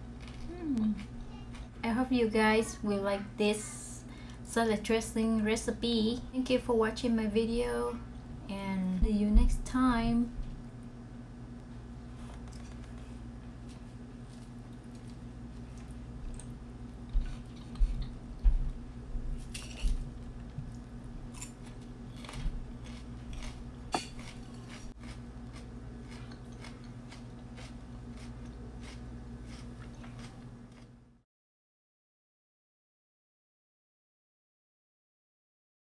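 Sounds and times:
chewing crunchy lettuce: 0.0s - 1.8s, 12.1s - 18.4s, 19.3s - 31.0s
steady low hum: 0.0s - 31.2s
fork clicking on plate: 23.9s - 24.5s.

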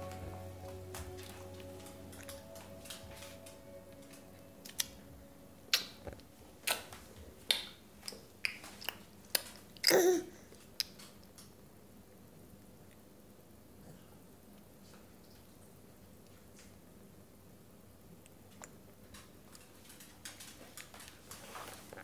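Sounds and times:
baby vocalizing: 9.8s - 10.4s.

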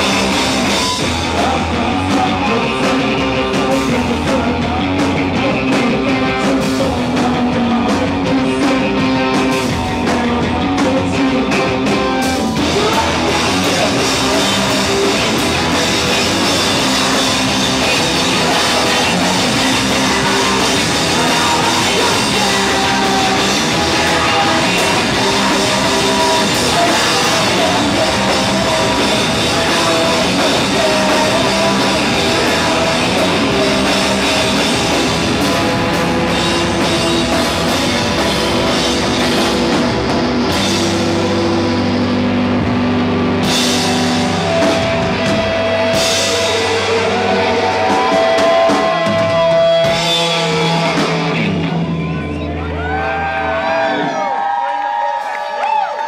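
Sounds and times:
drum kit: 0.0s - 52.2s
electric bass: 0.0s - 54.2s
electric guitar: 0.0s - 56.0s.

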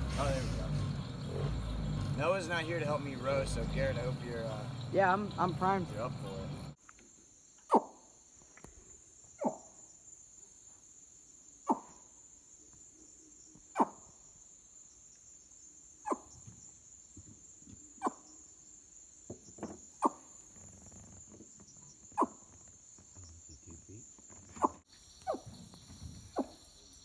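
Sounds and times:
insect chorus trilling: 0.0s - 27.0s.

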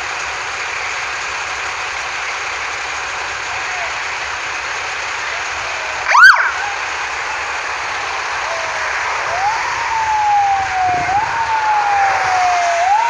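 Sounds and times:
siren whoop: 5.3s - 7.1s, 7.9s - 13.0s
siren rising and falling: 5.6s - 13.0s.

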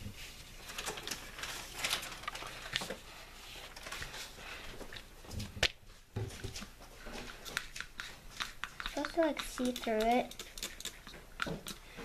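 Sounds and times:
paper napkins rustling: 0.0s - 4.6s.

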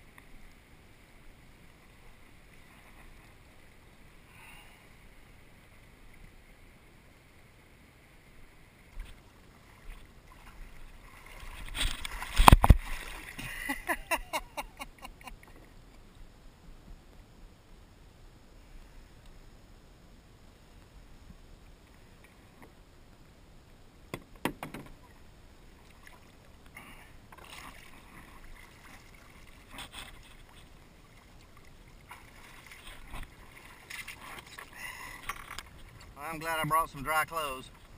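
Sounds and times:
water against canoe hull: 0.0s - 4.3s, 8.8s - 17.1s, 24.0s - 37.9s
knocks against canoe hull: 24.1s - 25.0s.

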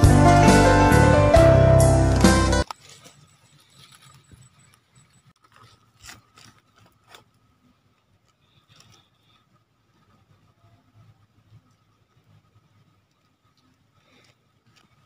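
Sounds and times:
background music: 0.0s - 2.6s.

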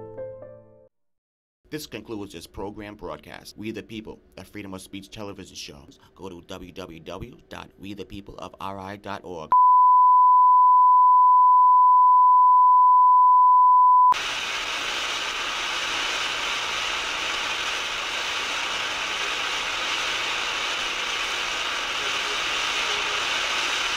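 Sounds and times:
tv static hiss: 14.2s - 23.9s.

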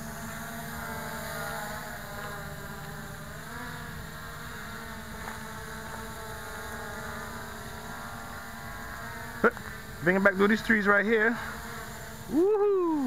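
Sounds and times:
quadcopter propellers buzzing: 0.0s - 13.0s.

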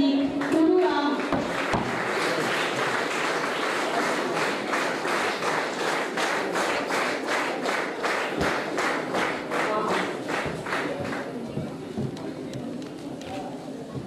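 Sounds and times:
audience applauding: 0.4s - 11.8s.

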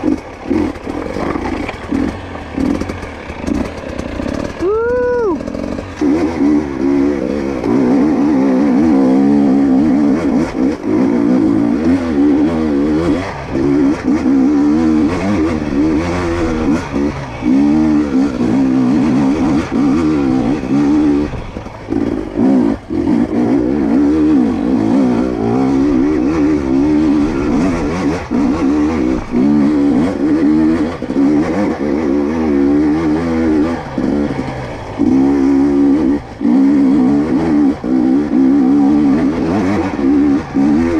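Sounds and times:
dirt bike engine revving: 0.0s - 40.9s.

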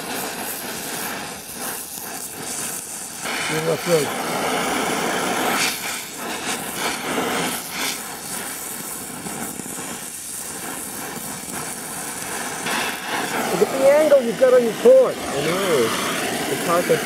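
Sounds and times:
welding torch flame hissing: 0.0s - 17.0s.

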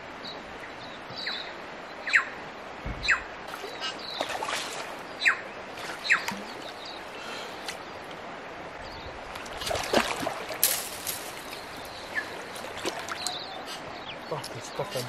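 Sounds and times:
river water over stones: 0.0s - 15.0s
sharp splashes and knocks: 2.8s - 5.0s, 5.7s - 6.8s, 9.3s - 13.4s.

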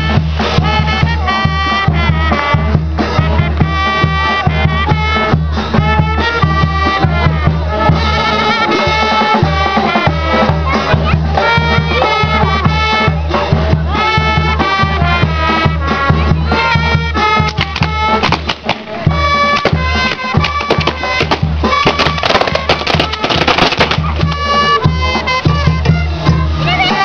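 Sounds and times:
folk music: 0.0s - 27.0s
dense run of sharp clicks: 22.0s - 24.0s.

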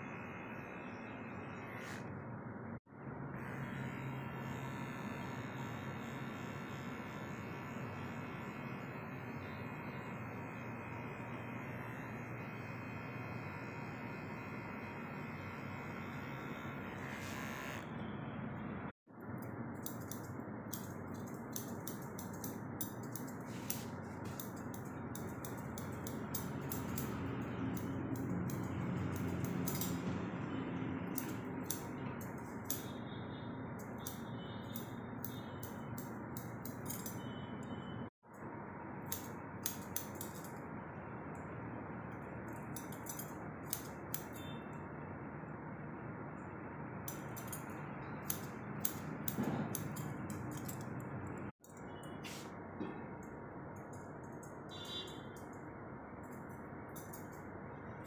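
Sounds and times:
scissors snipping hair: 3.7s - 17.8s, 19.4s - 30.0s, 31.1s - 33.0s, 33.8s - 37.3s, 39.0s - 40.6s, 42.5s - 44.6s, 47.1s - 51.0s, 56.2s - 57.5s.

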